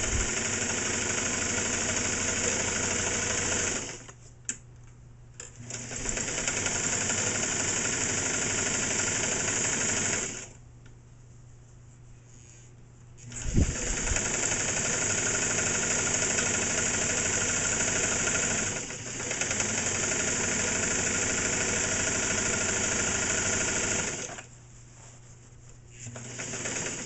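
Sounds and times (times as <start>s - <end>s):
sewing machine running fast: 0.0s - 4.1s, 5.6s - 10.5s, 13.3s - 24.4s, 26.0s - 27.0s.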